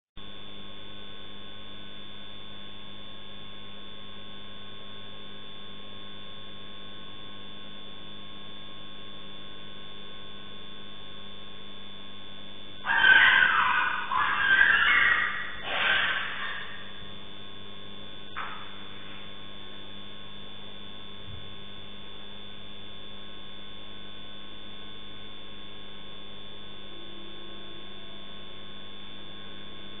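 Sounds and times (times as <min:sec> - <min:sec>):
electrical mains hum: 0:00.2 - 0:30.0
loud animal cry: 0:12.8 - 0:17.1.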